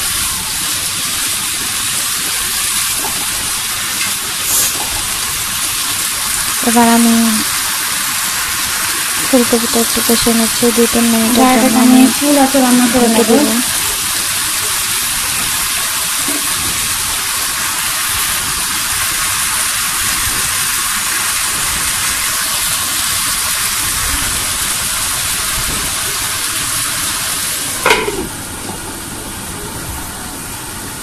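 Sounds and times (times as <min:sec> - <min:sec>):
vegetables sizzling in oil: 0:00.0 - 0:31.0
glass lid clinking on pan: 0:27.8 - 0:28.3.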